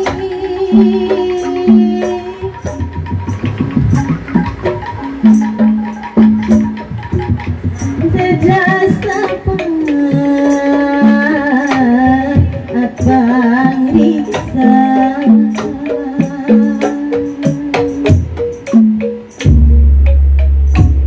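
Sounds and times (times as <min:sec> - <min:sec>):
woman singing into microphone: 0:00.0 - 0:02.9, 0:07.9 - 0:18.2
bamboo tubes beat: 0:00.0 - 0:21.0
drum strokes: 0:00.0 - 0:21.0.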